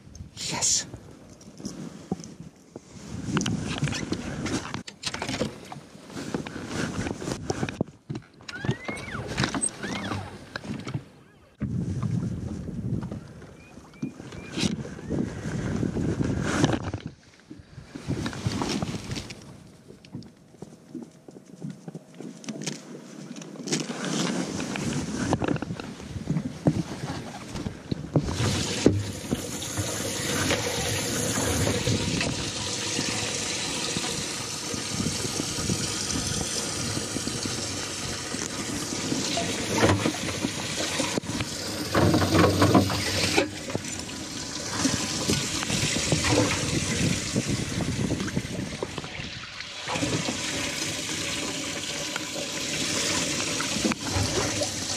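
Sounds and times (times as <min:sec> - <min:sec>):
water rushing and splashing: 0:28.2 - 0:54.9.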